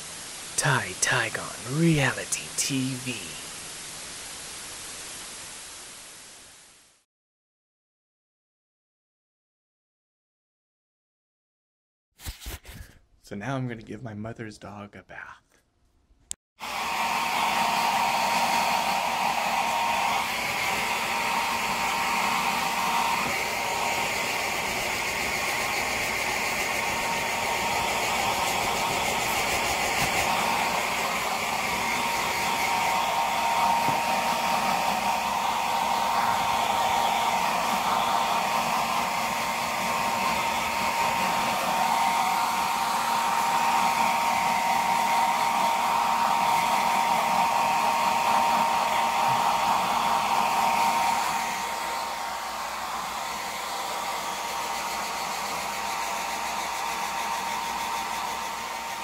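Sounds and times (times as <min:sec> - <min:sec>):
hair dryer running: 0:16.6 - 0:59.0.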